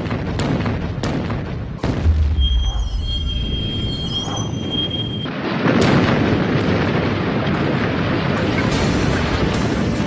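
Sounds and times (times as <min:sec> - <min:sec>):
high-pitched whine: 0:02.3 - 0:05.3
tank cannon firing: 0:05.3 - 0:10.0.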